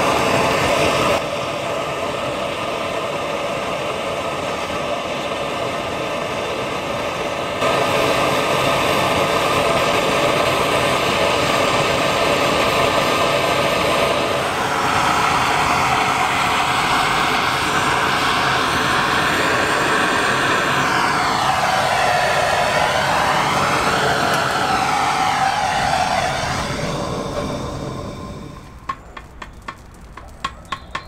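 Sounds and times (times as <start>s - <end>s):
gas torch flame hissing: 0.0s - 31.0s.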